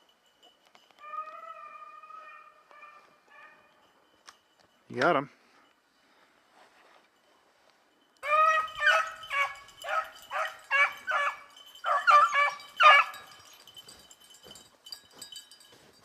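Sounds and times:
hounds baying: 0:01.0 - 0:04.3, 0:08.2 - 0:14.6.

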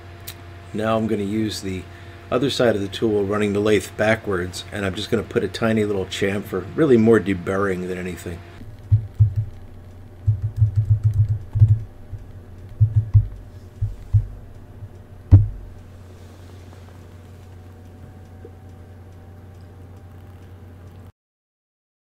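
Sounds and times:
steady low hum: 0:00.0 - 0:21.1
dull low taps and thumps: 0:08.7 - 0:09.6, 0:10.2 - 0:14.4, 0:15.3 - 0:15.8.

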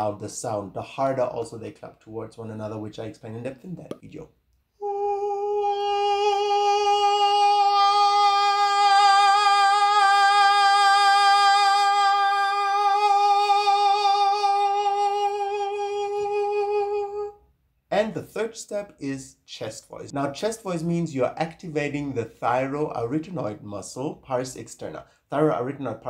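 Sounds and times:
man singing a long note: 0:04.8 - 0:17.4.

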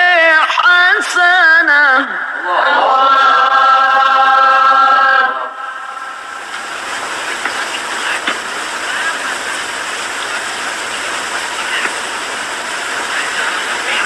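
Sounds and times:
steady rushing noise: 0:05.6 - 0:14.0.

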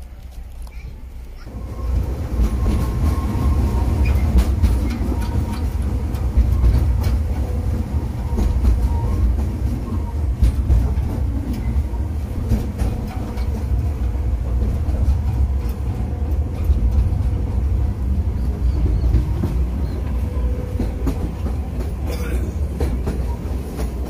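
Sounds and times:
train rumbling on track: 0:00.0 - 0:24.0
wheels clicking on rails: 0:00.0 - 0:24.0.

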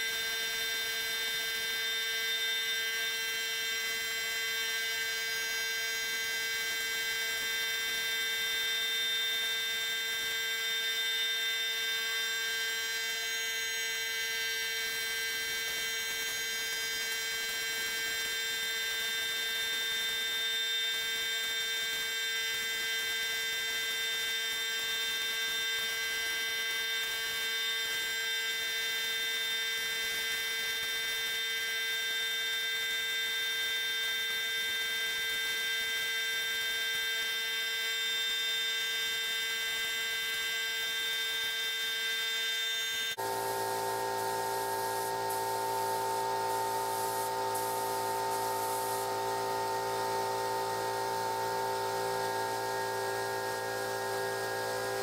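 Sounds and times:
high whining tones: 0:42.2 - 0:55.0
machine hum: 0:43.2 - 0:55.0.

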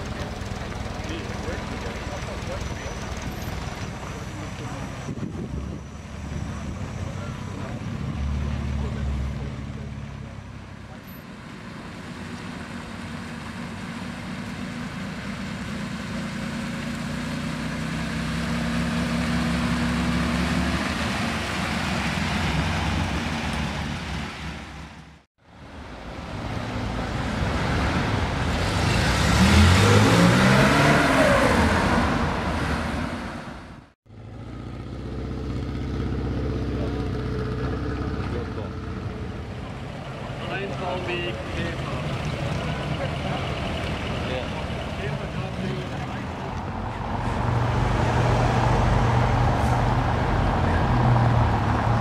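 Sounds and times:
car engine running: 0:00.0 - 0:05.0
car accelerating past: 0:27.0 - 0:33.6.

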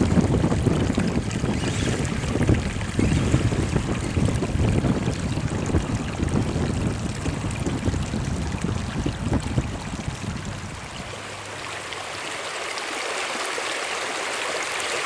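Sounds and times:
wind rumble on microphone: 0:00.0 - 0:11.6
rc car splashing through water: 0:00.0 - 0:15.0
stream rushing: 0:00.0 - 0:15.0.

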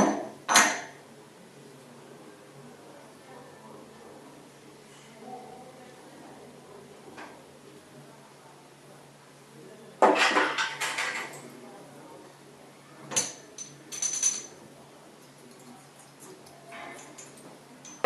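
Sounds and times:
metal parts clattering on table: 0:13.1 - 0:14.5.

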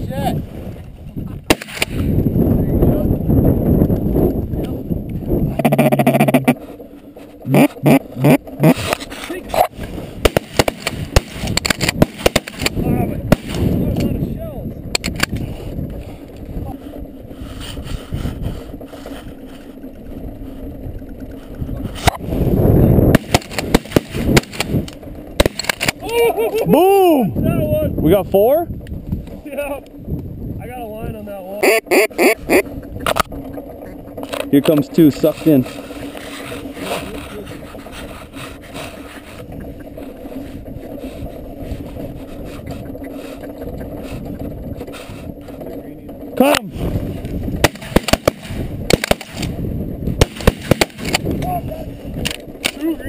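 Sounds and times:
sharp crack: 0:01.4 - 0:02.2, 0:07.5 - 0:14.2, 0:14.9 - 0:15.5, 0:23.1 - 0:26.1, 0:47.6 - 0:51.5, 0:52.2 - 0:52.9
shotgun shots: 0:01.5 - 0:02.1, 0:10.2 - 0:13.7, 0:23.1 - 0:24.8, 0:25.4 - 0:25.9, 0:47.6 - 0:49.6, 0:50.2 - 0:51.2
stubble rubbing against microphone: 0:05.4 - 0:12.2, 0:16.5 - 0:19.8, 0:35.2 - 0:45.8
wind rustling against blind: 0:32.4 - 0:53.0.

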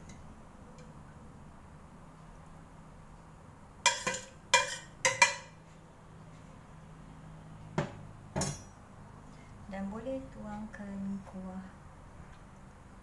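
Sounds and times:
metal ladle clinking on pot: 0:03.9 - 0:05.6.

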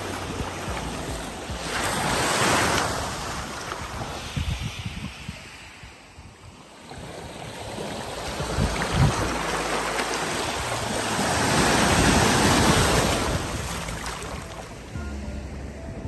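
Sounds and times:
seawater swishing and lapping: 0:06.8 - 0:14.9.

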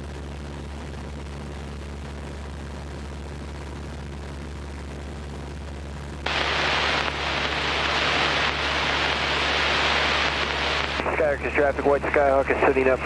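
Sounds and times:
aircraft engine droning: 0:06.3 - 0:13.0
radio static burst: 0:06.3 - 0:13.0.

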